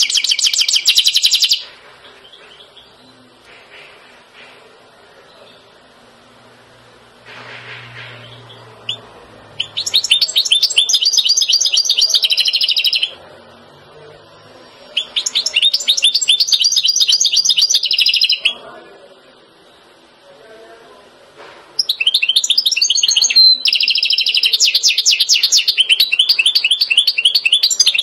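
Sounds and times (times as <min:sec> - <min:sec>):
bird twittering song: 0:00.0 - 0:03.3, 0:08.0 - 0:13.2, 0:15.0 - 0:18.6, 0:21.8 - 0:28.0.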